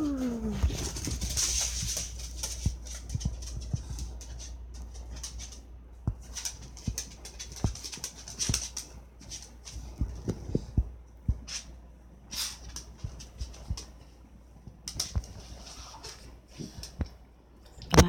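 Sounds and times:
dog claws clicking on wood floor: 0.7s - 10.4s, 14.8s - 17.0s.

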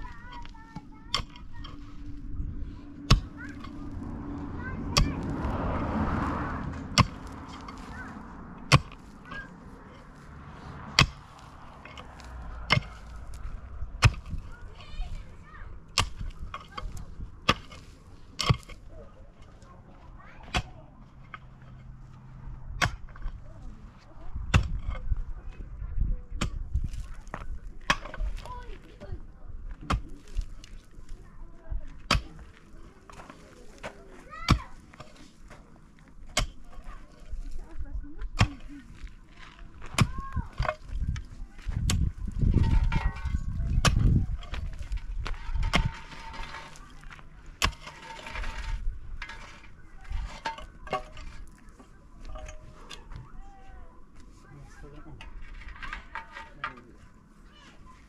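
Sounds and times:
pickaxe striking stony soil: 0.0s - 1.8s, 3.1s - 4.0s, 6.7s - 8.0s, 8.6s - 9.5s, 10.9s - 15.1s, 15.9s - 18.9s, 20.4s - 20.7s, 22.8s - 23.4s, 24.4s - 25.2s, 26.4s - 28.6s, 29.7s - 30.9s, 32.0s - 35.6s, 36.2s - 37.6s, 38.2s - 51.6s
loosened stones knocking: 38.2s - 53.2s.

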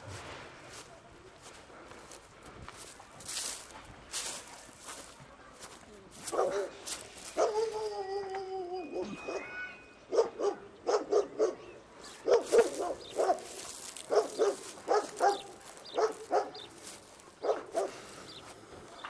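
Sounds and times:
dog barking: 6.3s - 7.8s, 10.1s - 16.7s, 17.4s - 18.0s.

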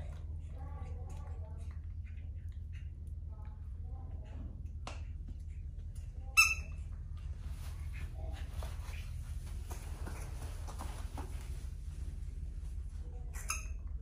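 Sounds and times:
steady low hum: 0.0s - 14.0s
rustling and handling noises: 6.9s - 13.2s
high-pitched squeak: 13.3s - 13.8s.

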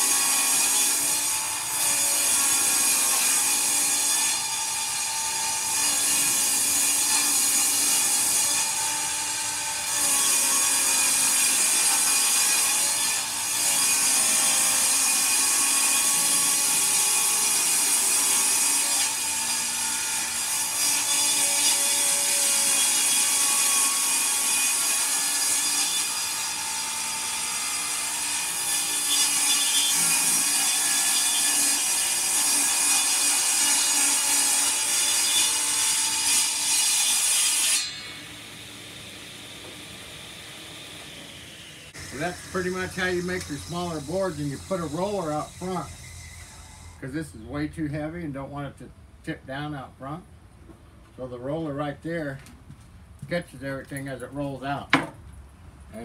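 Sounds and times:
table saw ripping board: 0.0s - 38.7s.

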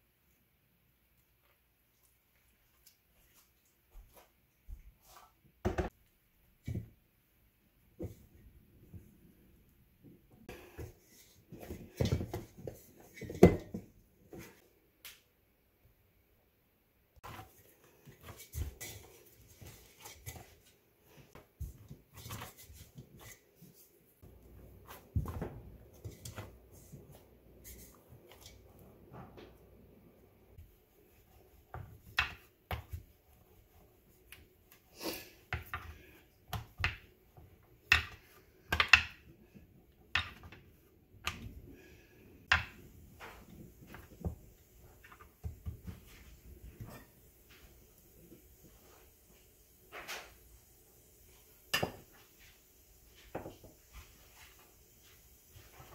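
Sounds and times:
hands kneading dough in a bowl: 0.0s - 15.3s, 17.2s - 55.9s
rolling pin on countertop: 10.5s - 14.6s, 17.2s - 29.5s, 30.6s - 34.8s, 42.4s - 50.4s, 51.7s - 52.4s, 53.2s - 55.9s.

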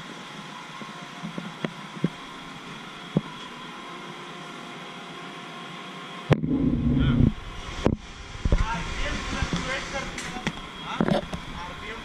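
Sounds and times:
machinery hum: 0.0s - 12.0s
faint whine tones: 0.1s - 12.0s.

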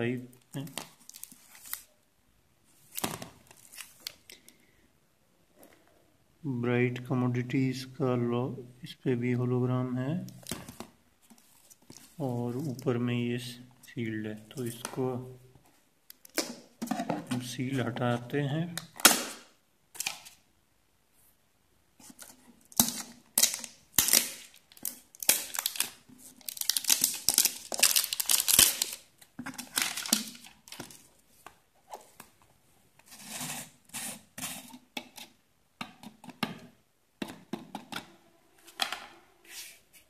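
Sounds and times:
plastic tearing and crinkling: 22.7s - 31.0s.

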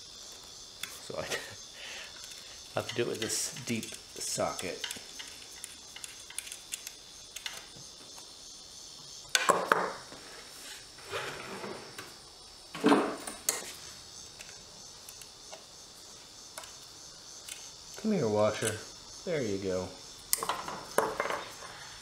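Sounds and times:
crickets chirping: 0.0s - 22.0s
metal on wood clatters: 2.2s - 7.7s, 20.3s - 21.9s.

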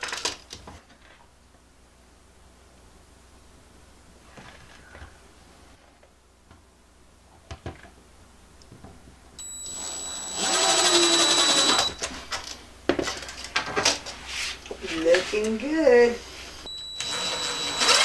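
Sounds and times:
power drill whining: 9.4s - 12.1s, 16.7s - 18.0s.

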